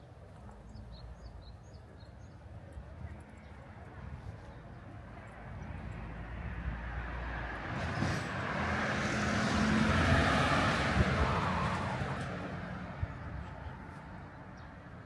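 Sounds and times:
vehicle passing by: 5.3 - 14.6.

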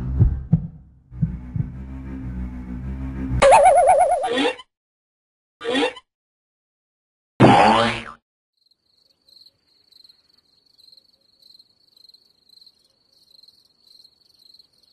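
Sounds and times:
cricket chirping: 8.6 - 14.9.

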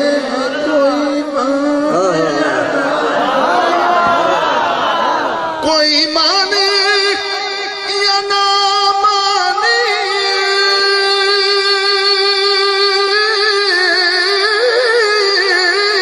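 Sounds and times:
man singing into a microphone: 0.0 - 3.2, 5.6 - 16.0.

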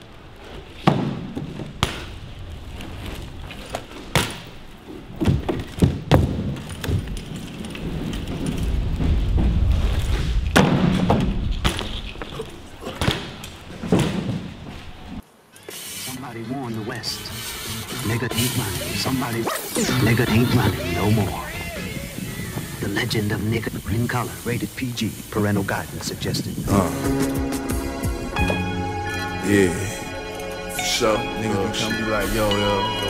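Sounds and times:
bike tyres rolling on concrete: 0.0 - 26.9
bike wheels thudding and clanking: 0.4 - 15.1.

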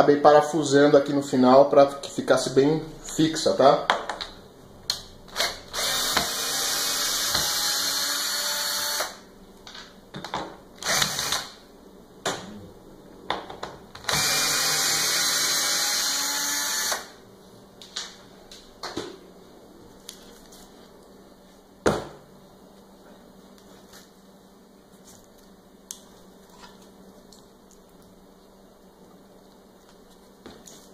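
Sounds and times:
power drill running: 5.3 - 9.2, 10.8 - 11.5, 14.0 - 17.2.

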